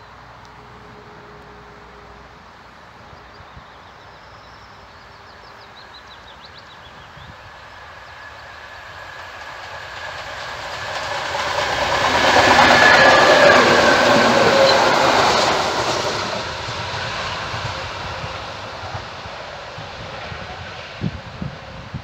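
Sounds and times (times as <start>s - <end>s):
train wheels on rails: 5.0s - 22.0s.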